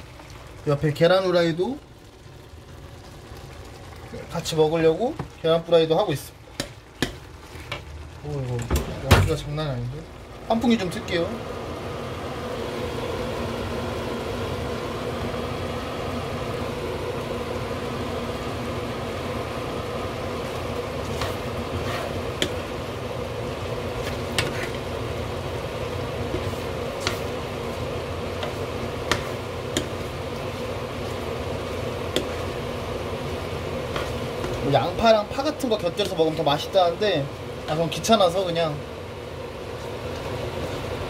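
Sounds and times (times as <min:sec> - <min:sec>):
food simmering in a pan: 0:00.0 - 0:41.0
range hood fan humming: 0:00.0 - 0:41.0
plastic spatula scraping a pan: 0:20.5 - 0:22.5, 0:23.9 - 0:24.9, 0:26.3 - 0:27.4, 0:33.8 - 0:34.7.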